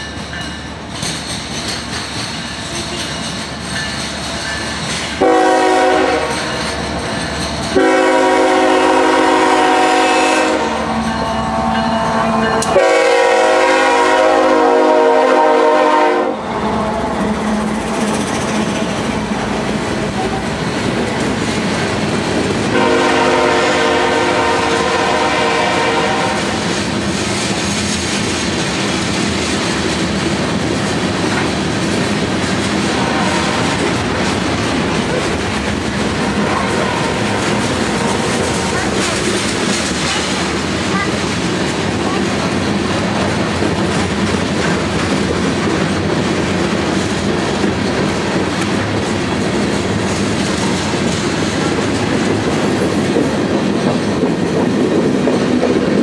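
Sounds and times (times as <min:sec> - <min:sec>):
freight train rumbling on rails: 0:00.0 - 0:56.0
locomotive air horn blasts: 0:05.2 - 0:06.5, 0:07.8 - 0:11.0, 0:12.1 - 0:16.4, 0:22.7 - 0:26.6.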